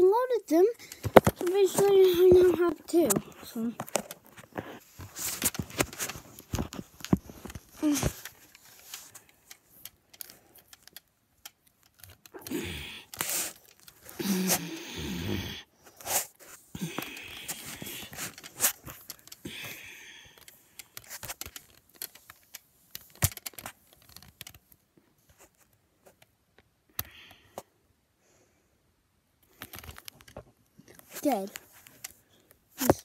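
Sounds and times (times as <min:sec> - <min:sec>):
handling rustling and scrapes: 0:00.5 - 0:14.8, 0:15.8 - 0:19.8, 0:20.4 - 0:26.3, 0:29.5 - 0:33.0
plastic toy clicks and knocks: 0:05.3 - 0:14.1, 0:20.2 - 0:24.7.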